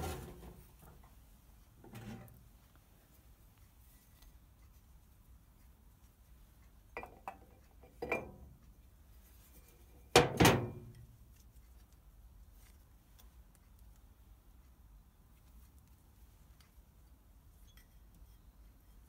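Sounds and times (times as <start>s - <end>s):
metal cover clanking: 8.0s - 8.4s, 10.2s - 10.8s.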